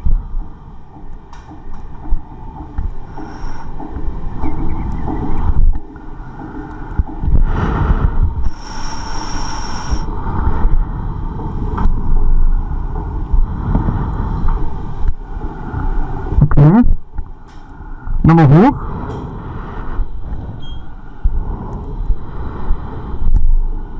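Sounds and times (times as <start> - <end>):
breathing through respirator mask: 3.0 - 4.0, 6.2 - 10.4.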